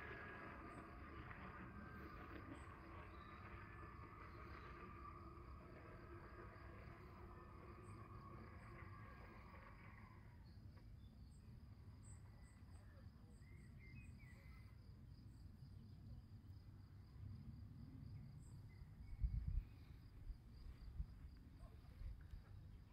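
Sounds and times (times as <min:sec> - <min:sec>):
insects trilling: 0:00.0 - 0:15.4
wind rumble on microphone: 0:18.8 - 0:22.9.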